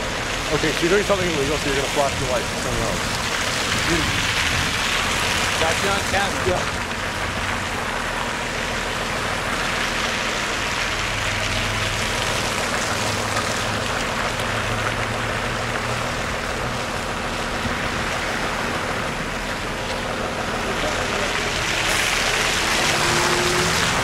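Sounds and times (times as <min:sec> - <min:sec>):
bus engine running: 0:00.0 - 0:24.0
car passing through slush: 0:00.0 - 0:24.0
tyres hissing in snow: 0:20.8 - 0:24.0.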